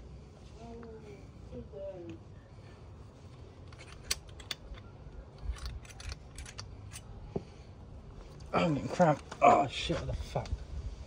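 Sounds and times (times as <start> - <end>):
metallic clicks of gears fitted: 3.7 - 7.1.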